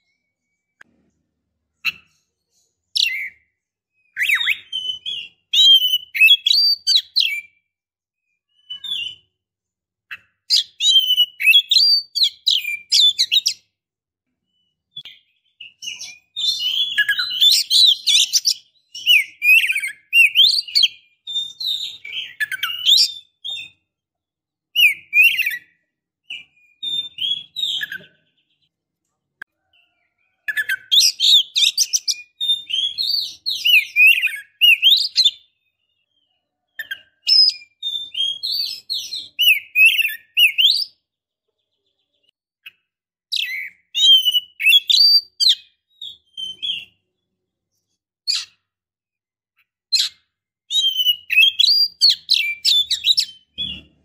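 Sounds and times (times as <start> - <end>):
bird chirps and whistles: 2.9 - 7.7, 8.3 - 9.4, 10.1 - 13.7, 14.5 - 23.9, 24.7 - 28.7, 30.4 - 41.0, 42.6 - 47.0, 48.3 - 48.6, 49.9 - 53.8.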